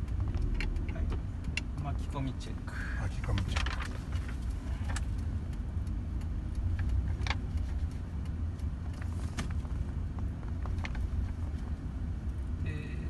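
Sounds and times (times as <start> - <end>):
engine and road rumble: 0.0 - 13.0.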